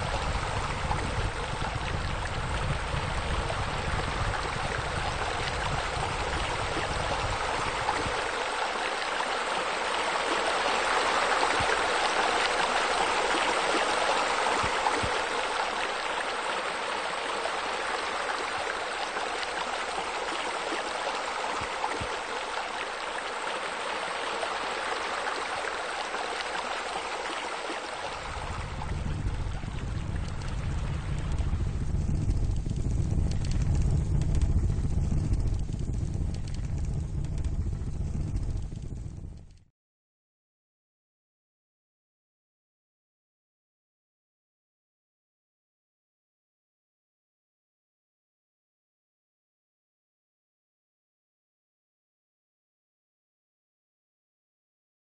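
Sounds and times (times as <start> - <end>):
low rumble: 0.0 - 8.2, 28.1 - 39.6
water rushing: 0.0 - 35.7.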